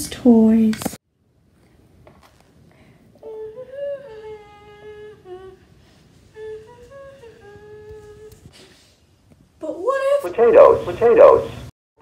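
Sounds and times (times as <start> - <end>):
girl humming: 3.1 - 8.7.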